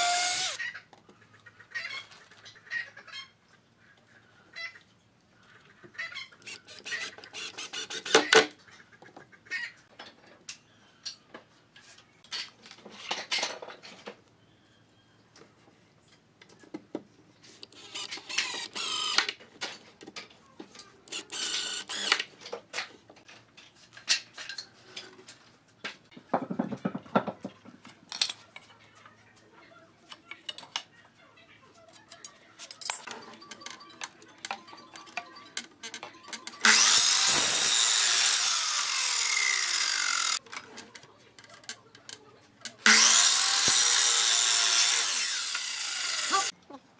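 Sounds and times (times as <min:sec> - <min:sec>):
screws grinding into wood: 0:00.0 - 0:00.6, 0:06.4 - 0:08.5, 0:17.7 - 0:19.3, 0:21.1 - 0:22.3, 0:36.6 - 0:40.4, 0:42.8 - 0:46.5
handling wood and tools: 0:09.9 - 0:14.4, 0:15.3 - 0:29.4, 0:30.0 - 0:46.5
screwdriver clicks and clinks: 0:32.1 - 0:37.8.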